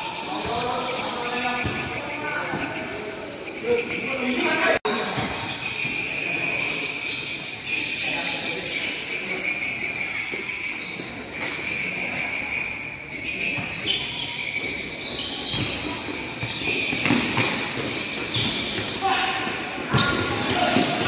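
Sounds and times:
steady high chirping: 0.0 - 21.0
ball bouncing on hard court: 0.3 - 3.0, 5.0 - 6.0, 13.5 - 21.0.

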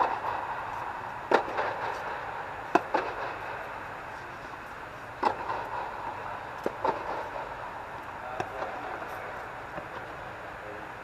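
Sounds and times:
steady hum: 0.0 - 11.0
tennis ball pops off racquets: 1.2 - 2.0, 2.7 - 3.3, 5.2 - 5.7.

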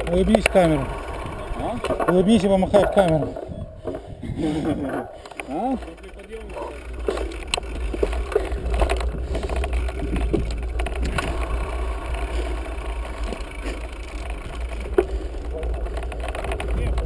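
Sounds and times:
wind rumble on microphone: 0.0 - 5.2, 7.4 - 13.5
bike clicks and rattles: 0.0 - 17.0.

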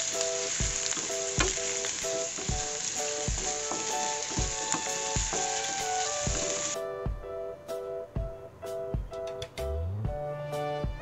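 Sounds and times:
garlic and onion sizzling in oil: 0.0 - 6.8
wooden spatula stirring in pan: 0.0 - 6.8
background music with steady beat: 0.0 - 11.0.

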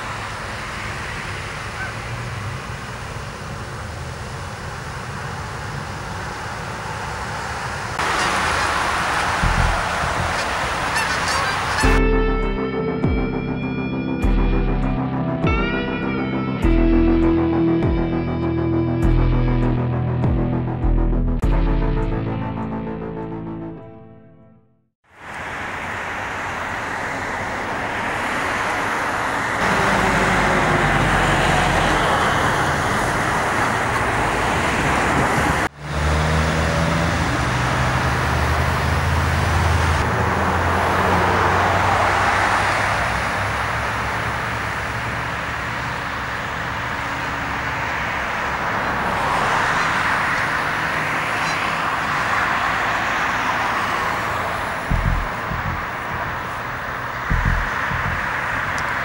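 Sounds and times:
road traffic passing: 0.0 - 20.2, 22.2 - 59.0
short low thumps: 54.8 - 58.8.

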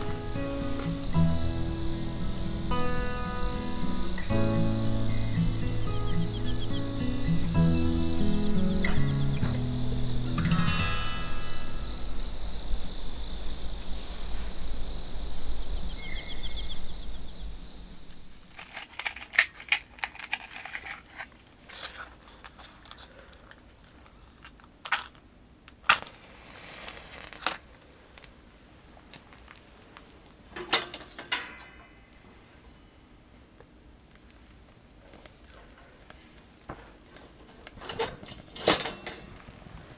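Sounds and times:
high pulsing insect-like trill: 0.0 - 18.5
rustling and crinkling: 0.0 - 32.4, 33.5 - 39.9.

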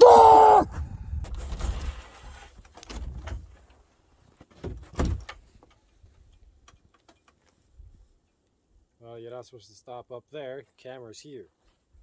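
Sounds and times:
wooden door knocks and thuds: 4.6 - 5.4.

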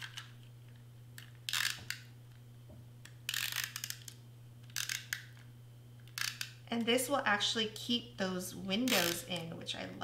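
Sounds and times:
tape runner ratcheting whir: 1.2 - 2.1, 3.0 - 6.6, 8.8 - 9.5.

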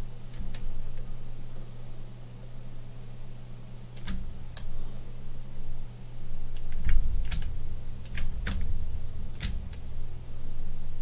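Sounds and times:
low electrical hum: 0.0 - 11.0
computer keyboard keys clicking: 6.6 - 9.8.

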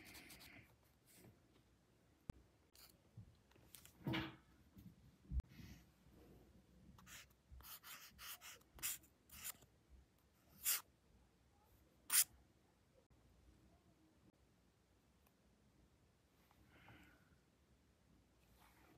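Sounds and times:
marker scratching on paper: 7.0 - 9.6, 10.6 - 10.8.

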